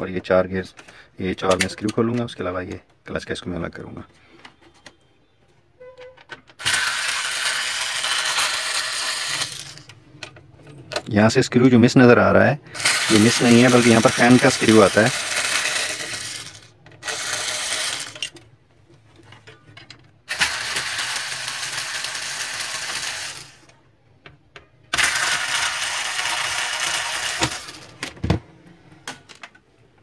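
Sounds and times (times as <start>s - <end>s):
power screwdriver whirring: 12.8s - 18.3s.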